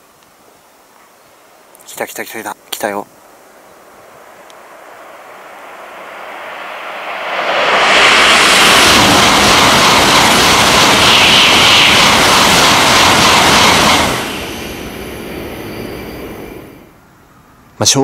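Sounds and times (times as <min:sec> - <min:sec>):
train passing at high speed: 0:03.7 - 0:17.5.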